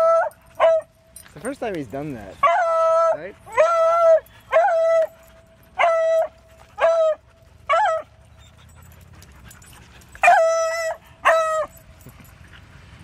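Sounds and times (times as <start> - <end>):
dog whining: 2.4 - 9.0, 9.6 - 11.8.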